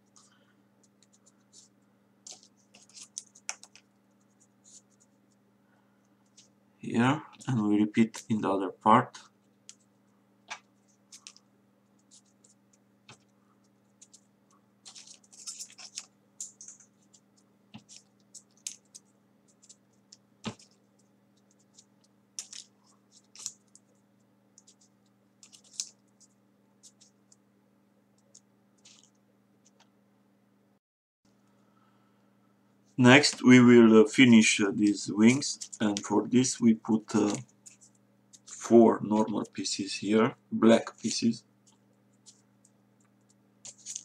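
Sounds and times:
faint low hum: 0:00.0 - 0:44.0
paper crinkles and taps: 0:02.2 - 0:03.9, 0:14.8 - 0:19.0, 0:19.6 - 0:20.8, 0:21.4 - 0:23.8, 0:24.6 - 0:27.4, 0:28.2 - 0:29.9, 0:37.1 - 0:39.4, 0:43.0 - 0:44.0.

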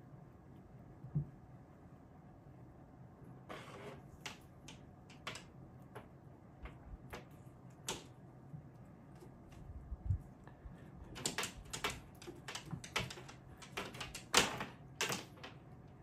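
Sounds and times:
faint scratching: 0:03.4 - 0:04.2
cat claws clicking and tapping: 0:04.2 - 0:06.0, 0:11.0 - 0:15.8.

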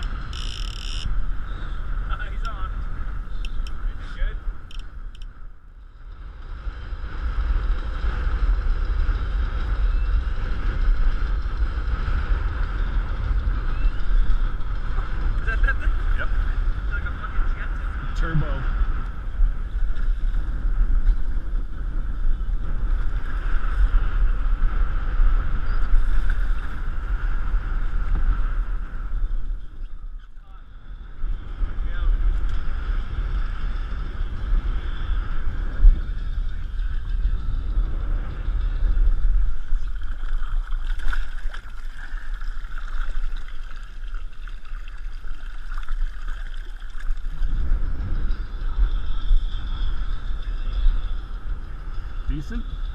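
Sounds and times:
wind buffeting microphone: 0:00.0 - 0:52.9
choppy water rushing: 0:39.6 - 0:47.8.

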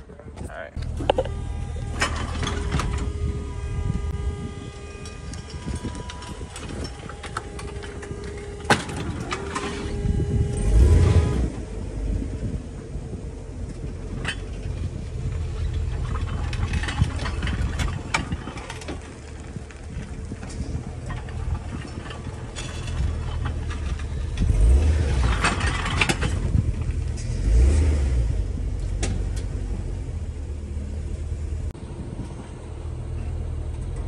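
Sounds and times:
tow truck engine running: 0:00.8 - 0:34.0.

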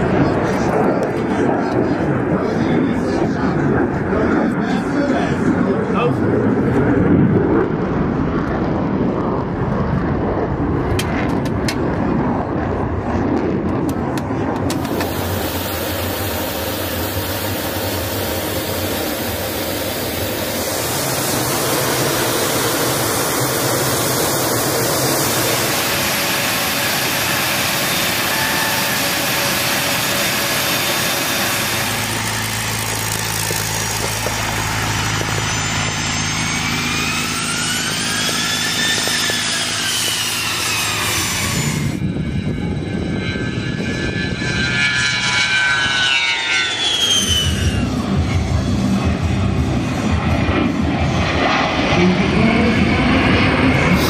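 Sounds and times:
jet engine rush: 0:00.0 - 0:54.0
jet engine whine: 0:00.0 - 0:54.0
jet passing by whining: 0:00.0 - 0:54.0.

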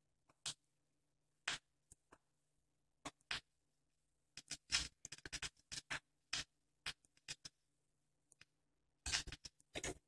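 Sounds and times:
record crackles and clicks: 0:01.4 - 0:02.2, 0:04.4 - 0:07.6, 0:08.3 - 0:10.0.

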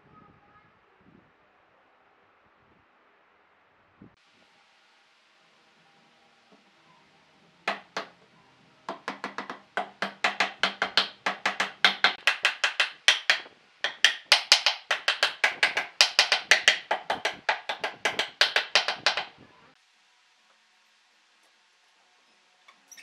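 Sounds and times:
hammering on wood: 0:07.7 - 0:08.2, 0:08.9 - 0:19.4.

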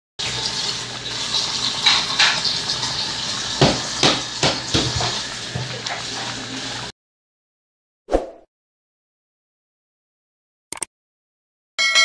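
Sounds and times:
pot boiling and bubbling: 0:00.2 - 0:06.9.

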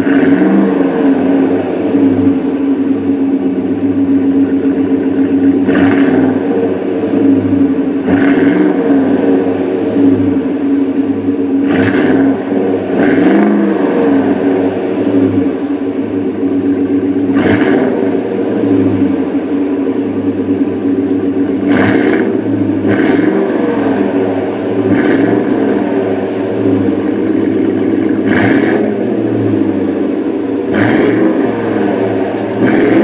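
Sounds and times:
pickup truck idling: 0:00.0 - 0:33.0.

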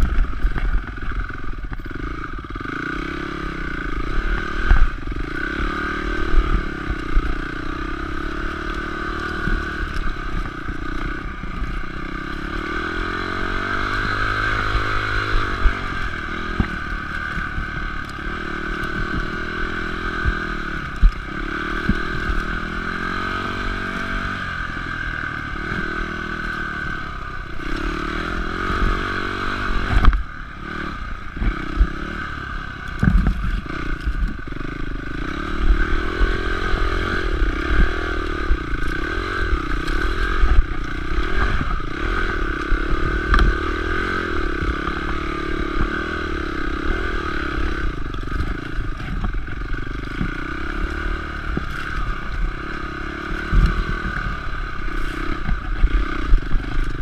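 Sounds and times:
motorcycle engine revving: 0:00.0 - 0:57.0
bike clattering over rough ground: 0:32.9 - 0:35.0.

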